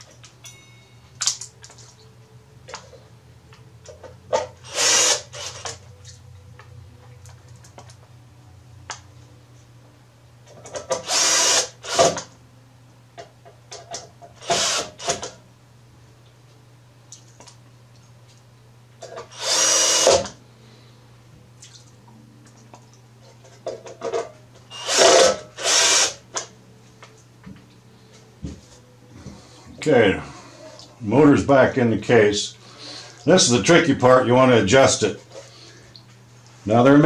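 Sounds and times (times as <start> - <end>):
cordless drill driving screws: 4.6 - 5.7, 10.9 - 12.2, 14.4 - 15.3, 19.3 - 20.4, 24.7 - 26.2.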